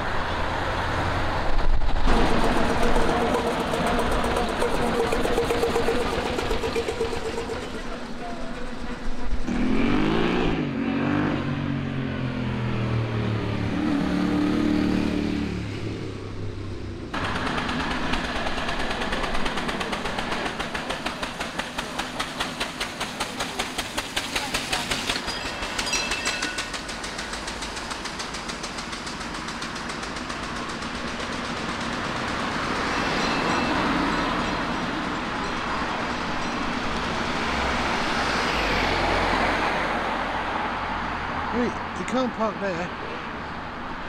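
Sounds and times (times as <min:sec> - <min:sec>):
vehicle engine revving: 0:01.9 - 0:16.3.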